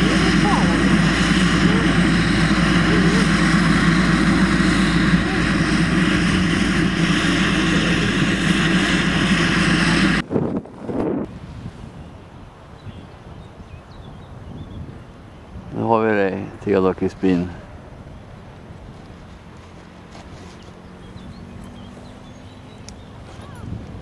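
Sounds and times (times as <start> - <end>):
turboprop plane idling: 0.0 - 11.3, 16.4 - 24.0
wind gusts on microphone: 0.0 - 24.0.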